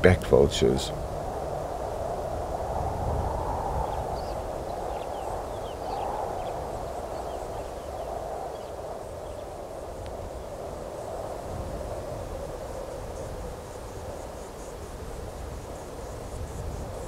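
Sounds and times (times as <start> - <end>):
outdoor hiss: 0.0 - 17.0
high bird calls: 3.7 - 10.6.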